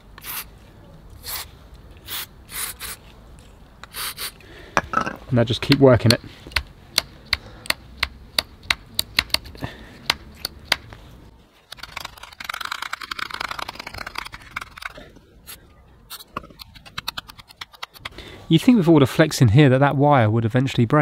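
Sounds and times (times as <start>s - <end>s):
spray rasping hiss: 1.2s - 3.0s, 3.8s - 4.4s.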